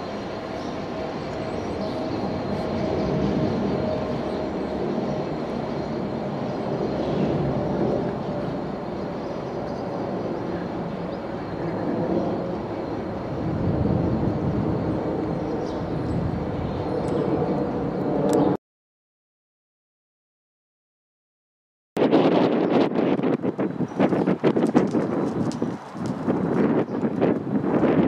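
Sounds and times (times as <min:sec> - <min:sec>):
distant diesel locomotives rumbling: 0:00.0 - 0:18.0
outdoor background noise: 0:00.0 - 0:18.6, 0:22.0 - 0:28.0.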